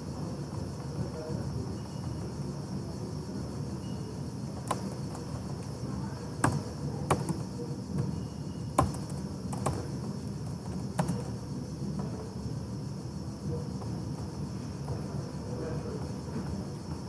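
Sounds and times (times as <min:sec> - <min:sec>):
low background hum: 0:00.0 - 0:17.0
keyboard key clicks: 0:06.4 - 0:07.5, 0:08.8 - 0:09.8.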